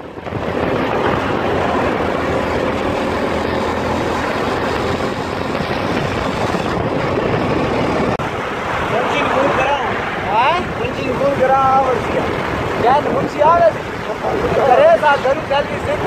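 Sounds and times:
motorcycle engine running: 0.0 - 8.2
rush of riding wind: 0.0 - 16.0.

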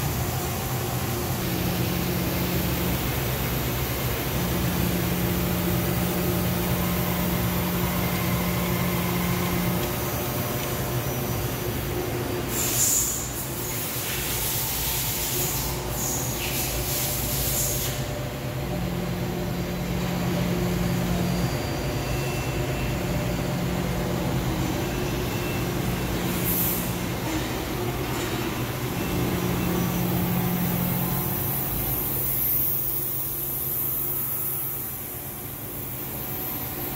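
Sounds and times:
steady machine hum: 0.0 - 36.9
higher machine tone: 4.0 - 12.2, 18.6 - 32.4.

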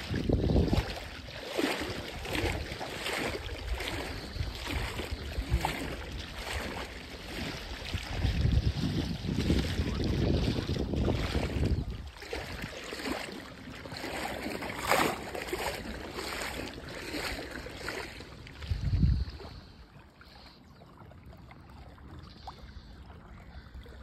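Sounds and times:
wind rumbling on microphone: 0.0 - 20.4
water sloshing: 0.0 - 24.0.

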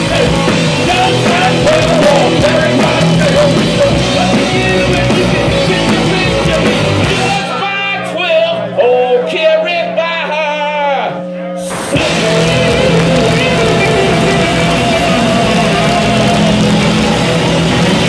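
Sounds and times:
drums and cymbals: 0.0 - 7.7, 11.7 - 18.0
electric guitars: 0.0 - 7.7, 11.2 - 18.0.

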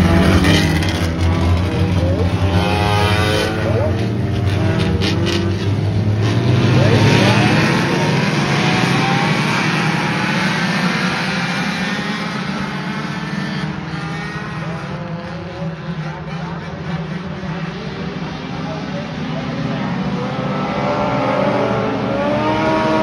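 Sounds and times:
race car engines revving: 0.0 - 23.0.

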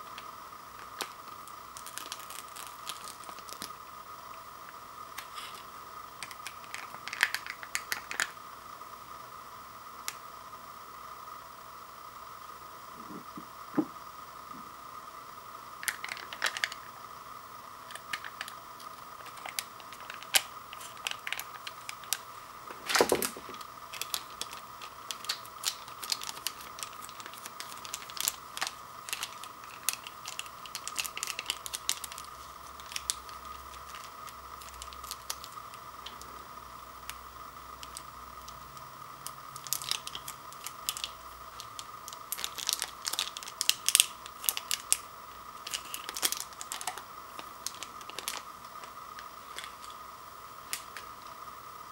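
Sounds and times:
faint steady hum: 0.0 - 51.9
plastic packets crinkling: 0.8 - 3.8, 19.2 - 35.8, 39.6 - 50.0.

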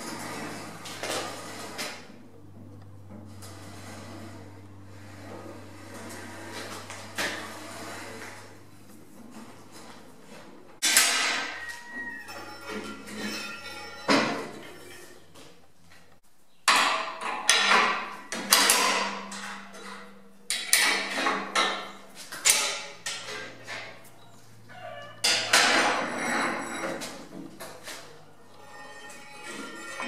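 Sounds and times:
metal vise clanking and knocking: 16.7 - 24.0.

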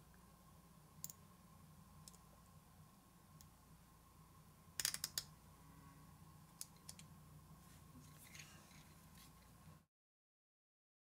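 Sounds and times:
faint steady hum: 0.0 - 9.9.

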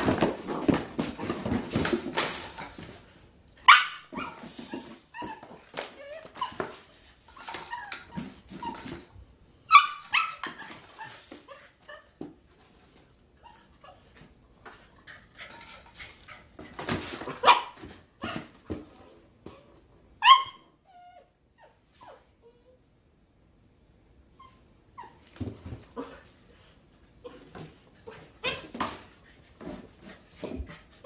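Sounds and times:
puppy scrabbling among boxes: 0.0 - 3.2, 4.1 - 9.2, 14.2 - 19.6, 27.3 - 31.0
puppy yipping and barking: 3.7 - 5.5, 9.6 - 11.1, 20.2 - 22.2
puppy whimpering: 3.9 - 6.8, 7.4 - 12.2, 20.2 - 22.8.

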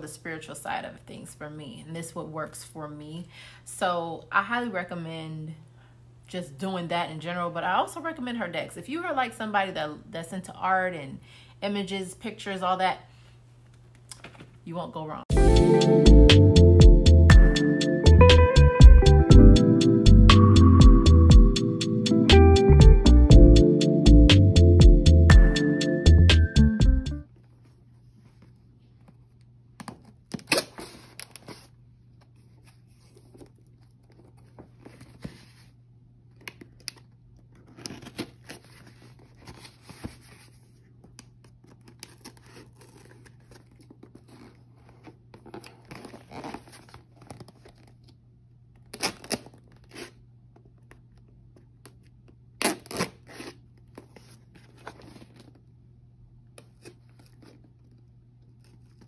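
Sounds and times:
plastic packaging tearing: 36.6 - 39.8, 41.6 - 44.6, 48.8 - 50.2, 52.6 - 54.0.

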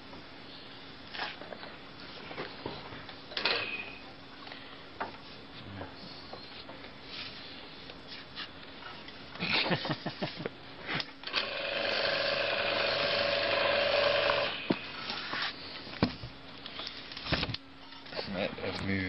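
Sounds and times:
motor humming: 11.2 - 15.2.

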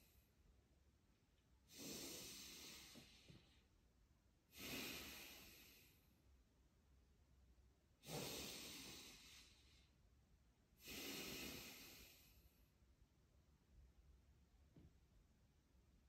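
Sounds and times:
person breathing forcefully: 1.7 - 3.6, 4.5 - 6.0, 8.0 - 9.9, 10.8 - 12.6.

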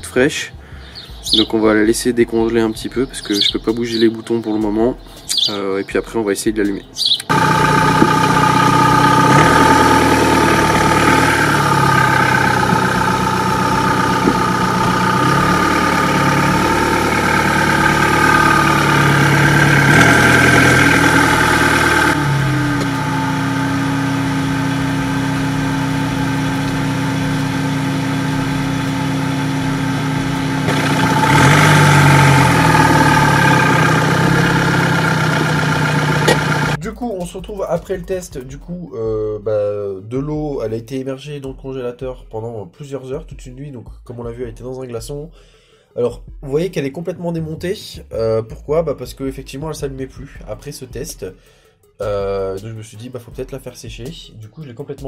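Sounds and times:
car engine idling at low revs: 7.3 - 36.8.

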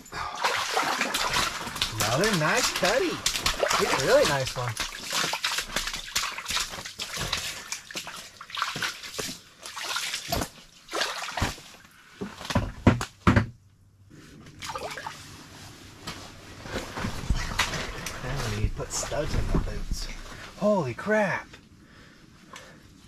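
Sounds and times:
water splashing and dripping: 0.4 - 11.8, 14.6 - 15.2.

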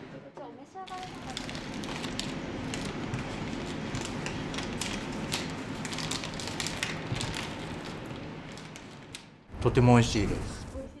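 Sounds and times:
paper bag crinkling: 0.9 - 9.4.

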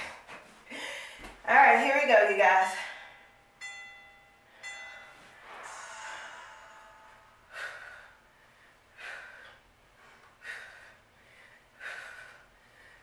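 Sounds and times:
woman exhaling forcefully: 5.4 - 9.6.

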